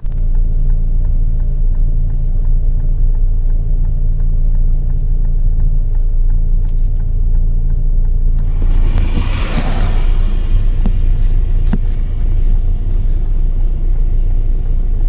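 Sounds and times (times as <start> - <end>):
faint rapid ticking: 0.0 - 8.8
car engine and road rumble: 0.0 - 15.0
rushing noise: 8.2 - 14.0.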